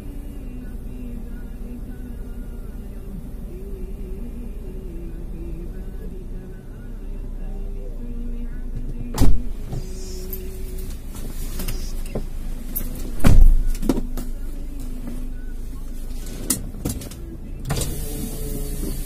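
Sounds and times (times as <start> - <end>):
car engine idling: 0.0 - 19.0
loud thump: 9.2 - 9.9, 13.1 - 14.1.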